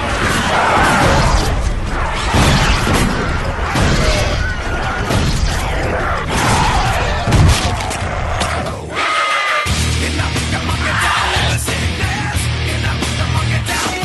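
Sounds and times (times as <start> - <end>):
crashing and banging: 0.0 - 8.1.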